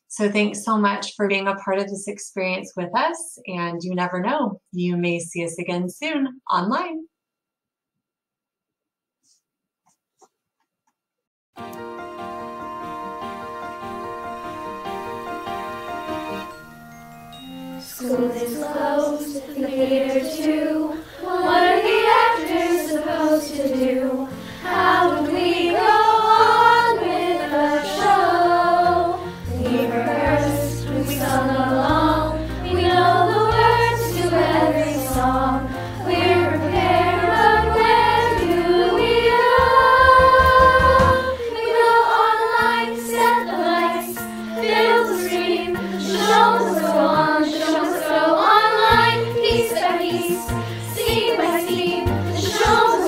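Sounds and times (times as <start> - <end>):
musical accompaniment with bass: 11.6 - 20.1, 21.6 - 53.0
girls singing in unison: 17.9 - 53.0.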